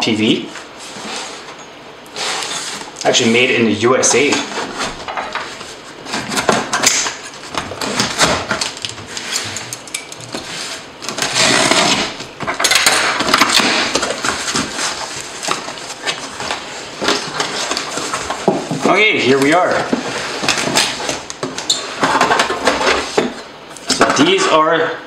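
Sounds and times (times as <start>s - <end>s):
tape peeled off cardboard: 10.3s - 12.2s.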